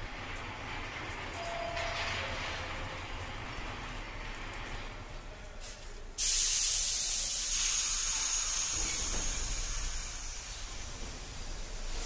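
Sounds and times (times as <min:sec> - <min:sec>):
train low rumble: 0:00.0 - 0:12.0
train brakes air hiss: 0:06.2 - 0:12.0.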